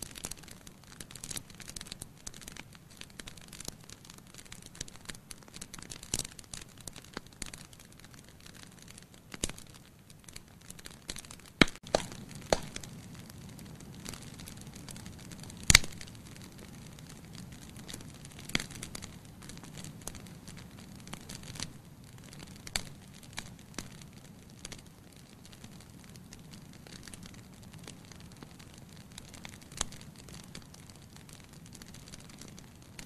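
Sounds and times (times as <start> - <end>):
fire pops and crackles: 0.0 - 33.0
low rush of flame: 11.7 - 33.0.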